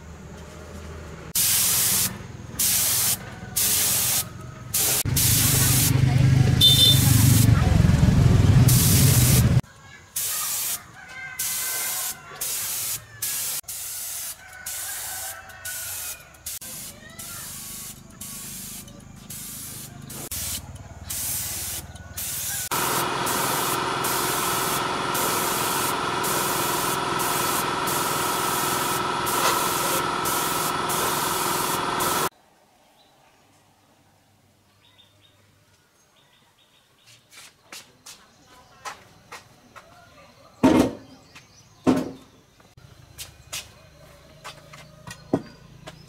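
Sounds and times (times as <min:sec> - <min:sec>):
spray gun air hissing: 0:01.4 - 0:06.0, 0:08.7 - 0:09.6, 0:10.2 - 0:10.8, 0:11.4 - 0:32.3
steady hum: 0:22.7 - 0:32.3.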